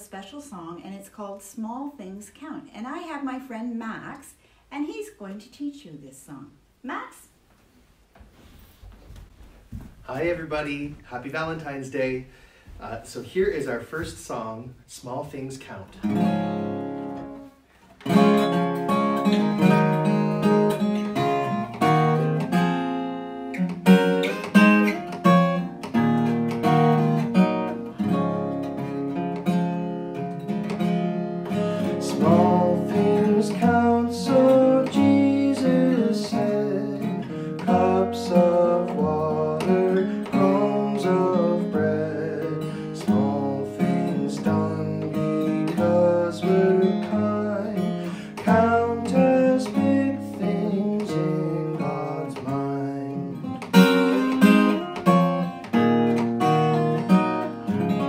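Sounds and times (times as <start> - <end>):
acoustic guitar: 0.0 - 58.0
man singing: 31.6 - 55.0.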